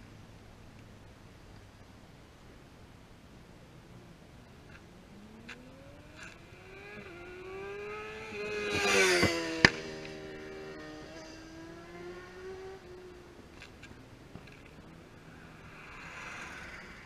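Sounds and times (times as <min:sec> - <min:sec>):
motorcycle engine passing by: 0:05.1 - 0:13.4, 0:14.7 - 0:17.0.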